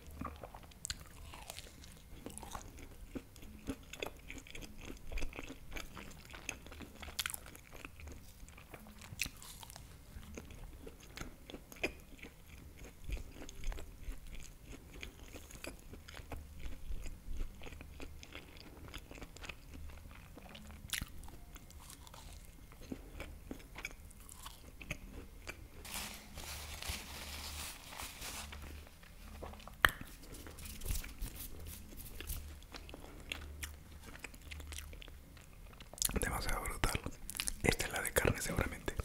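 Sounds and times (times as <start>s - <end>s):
chewing pastry crunches: 0.0s - 39.0s
paper napkin rustling: 25.8s - 32.5s
wet mouth sounds: 29.4s - 32.9s.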